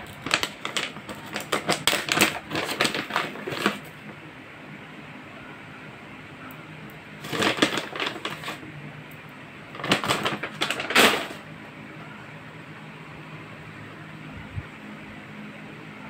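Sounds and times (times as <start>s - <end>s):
plastic bag rustling: 0.0s - 4.1s, 7.2s - 8.6s, 9.7s - 11.4s.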